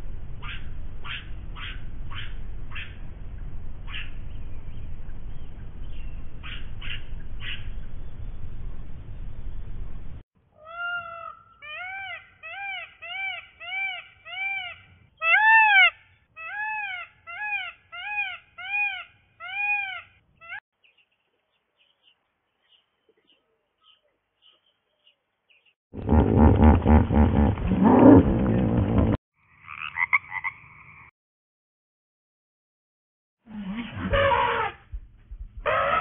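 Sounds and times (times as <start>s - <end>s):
animal call rising and falling: 35.6s - 36.0s.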